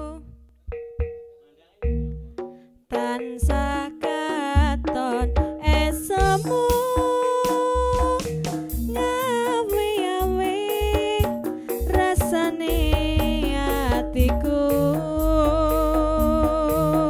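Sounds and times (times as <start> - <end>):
song with wavering melody: 0.0 - 17.0
steady bass: 1.8 - 2.4, 11.8 - 17.0.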